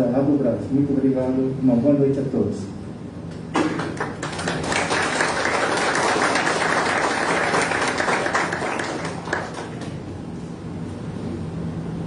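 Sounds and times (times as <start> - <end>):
applause: 3.6 - 10.0.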